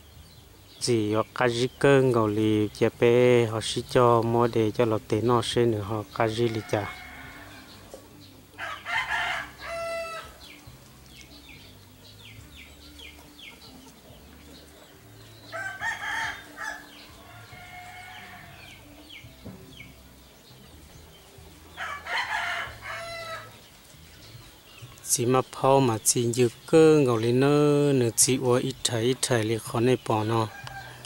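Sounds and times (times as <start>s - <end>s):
small birds chirping: 0.0s - 31.0s
rooster crowing: 6.3s - 7.9s, 8.6s - 10.5s, 15.4s - 18.9s, 21.7s - 23.6s, 30.5s - 31.0s.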